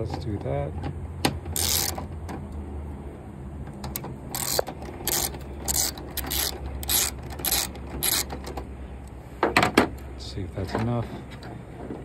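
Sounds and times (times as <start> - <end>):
socket ratchet clicking: 1.5 - 2.1, 3.8 - 8.6.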